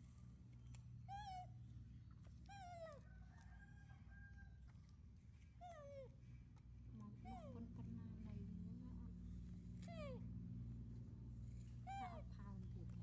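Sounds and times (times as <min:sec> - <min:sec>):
baby monkey whimpering: 0:01.1 - 0:01.5, 0:02.4 - 0:03.0.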